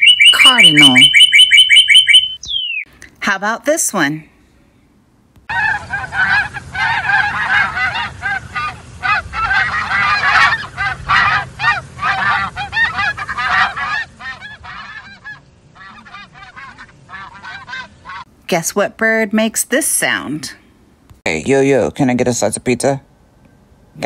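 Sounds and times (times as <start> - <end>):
geese honking: 0.0 - 2.7, 5.5 - 18.3.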